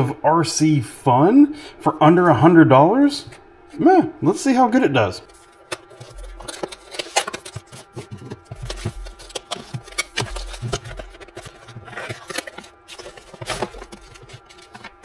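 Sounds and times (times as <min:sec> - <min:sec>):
cardboard box handling: 0:05.3 - 0:15.0.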